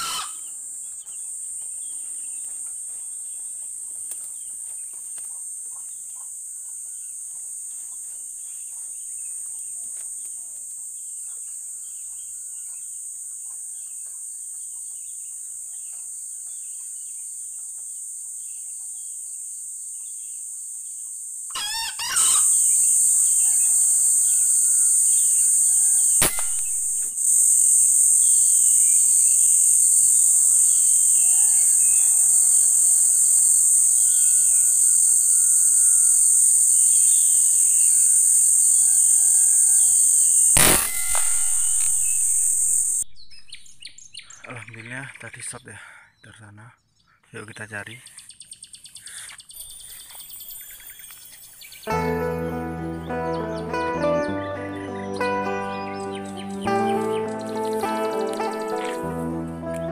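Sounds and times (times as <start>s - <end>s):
junglefowl crowing: 0.0s - 0.6s, 21.5s - 43.0s
bird chirps: 0.0s - 2.6s, 21.5s - 52.2s, 52.8s - 59.1s
high insect drone: 0.0s - 44.3s, 49.5s - 59.9s
rifle shot: 26.2s - 27.1s, 40.6s - 43.0s.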